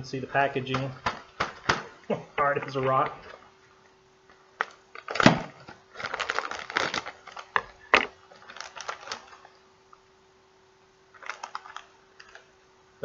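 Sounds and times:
chip bag crinkling: 4.6s - 9.6s, 11.1s - 12.5s.

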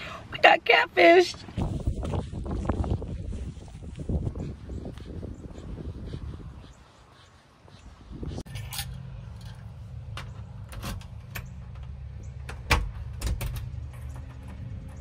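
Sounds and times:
keys and door latch clicking: 10.2s - 14.6s.

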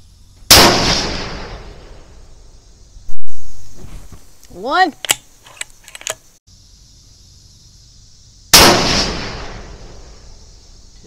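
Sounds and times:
rifle shot: 0.5s - 2.0s, 8.5s - 10.1s
rifle bolt clicks: 5.0s - 6.2s.

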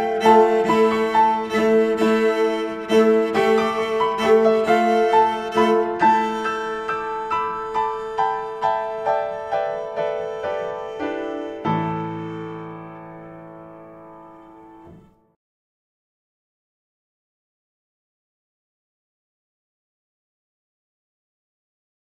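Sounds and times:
slow piano music: 0.0s - 15.4s.

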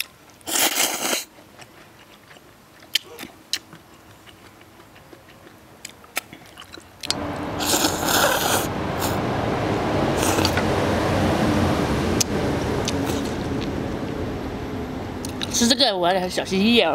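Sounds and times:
person slurping noodles: 0.4s - 1.3s, 7.6s - 9.2s, 10.2s - 10.6s
steady rumble: 7.1s - 16.9s.

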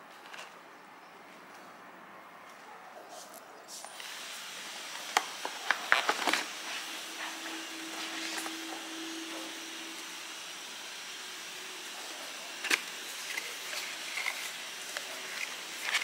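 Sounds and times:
faint steady hum: 0.0s - 16.0s
paper bag and box handling: 5.4s - 8.8s.

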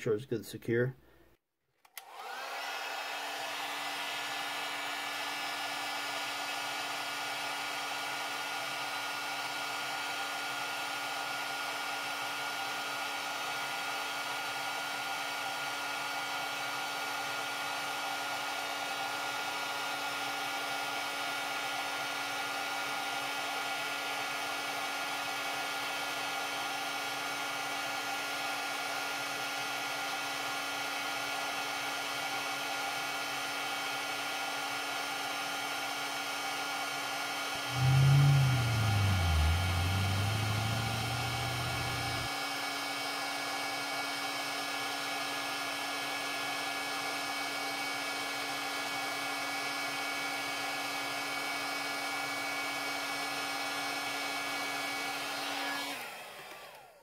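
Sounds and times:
heat gun fan humming: 37.7s - 42.3s.

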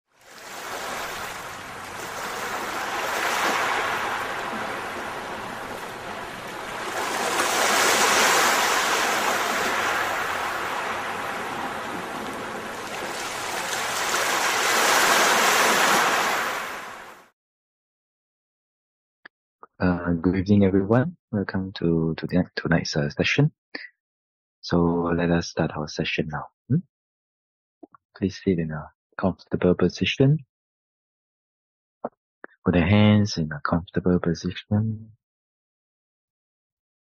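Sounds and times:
ocean waves washing in: 0.1s - 17.3s.

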